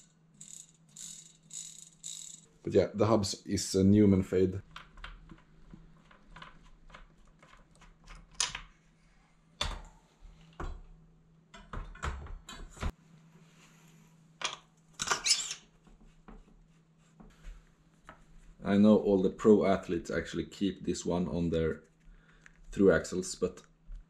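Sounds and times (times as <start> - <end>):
bicycle chain clicking and rattling: 0.0 - 2.5.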